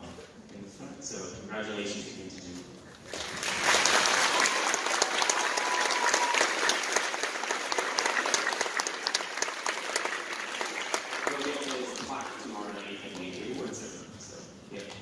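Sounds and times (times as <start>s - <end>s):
audience applauding: 3.1s - 12.6s.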